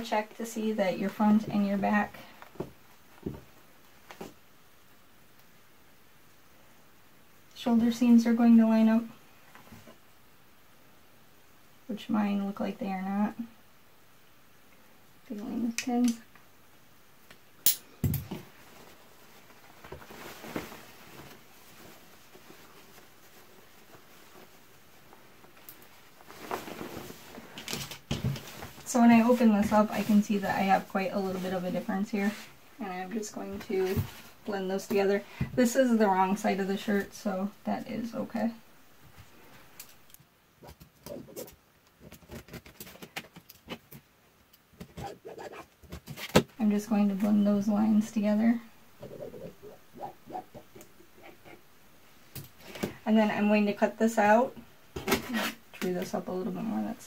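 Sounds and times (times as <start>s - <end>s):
soft fabric rustling: 18.2s - 57.0s
shirt rustling on cutting mat: 18.3s - 32.6s.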